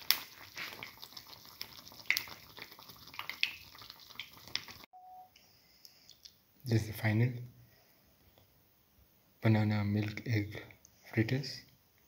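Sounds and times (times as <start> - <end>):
fritter frying in hot oil: 0.0 - 4.9
oil crackling and popping: 0.0 - 4.9.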